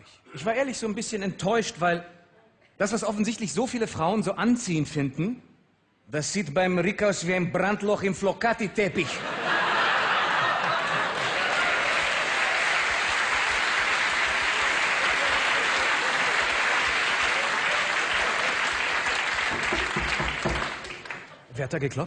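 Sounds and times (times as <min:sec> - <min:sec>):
audience applauding: 0:09.5 - 0:21.4.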